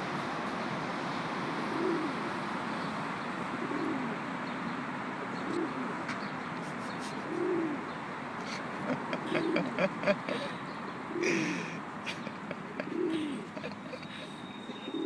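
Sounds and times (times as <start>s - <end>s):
pigeon cooing: 1.6s - 2.3s, 3.5s - 4.2s, 5.3s - 15.0s
steady background hiss: 3.5s - 15.0s.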